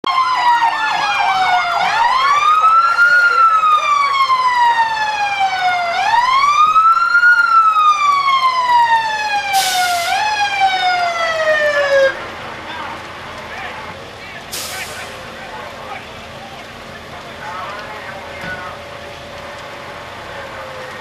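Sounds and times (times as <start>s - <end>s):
emergency siren: 0.0s - 21.0s
short hiss: 14.5s - 15.2s.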